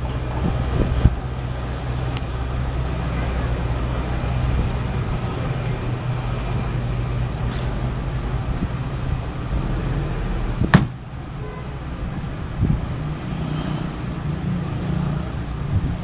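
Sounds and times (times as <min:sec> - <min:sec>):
diesel truck engine running: 0:00.0 - 0:16.0
dull thump: 0:10.6 - 0:11.0.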